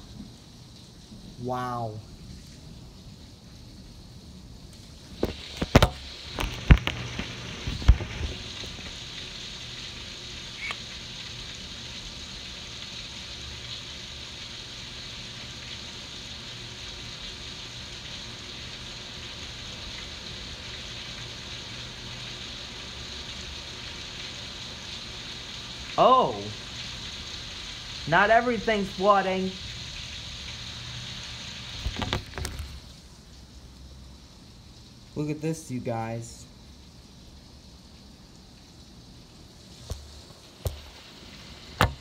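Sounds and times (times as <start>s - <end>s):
heavy rain pouring: 0.0s - 42.0s
sharp knocks and clicks: 41.8s - 42.0s.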